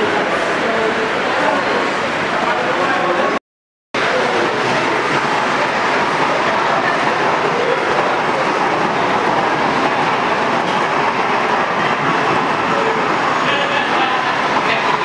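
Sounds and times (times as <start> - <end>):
model train running on track: 4.0 - 15.0.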